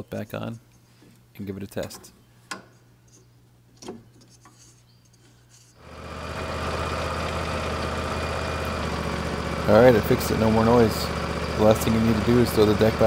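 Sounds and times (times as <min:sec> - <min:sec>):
lawn tractor engine running: 0:05.8 - 0:13.0.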